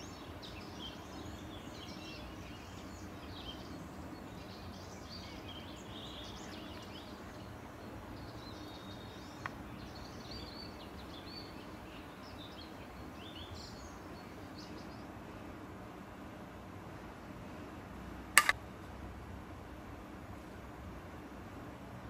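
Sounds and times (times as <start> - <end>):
small birds chirping: 0.0 - 15.2
steady background hiss: 0.0 - 22.0
sharp click: 18.4 - 18.6.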